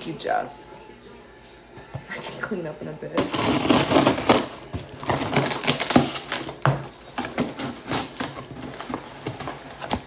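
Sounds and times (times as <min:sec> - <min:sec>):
packaging rustling and crinkling: 0:03.3 - 0:10.0.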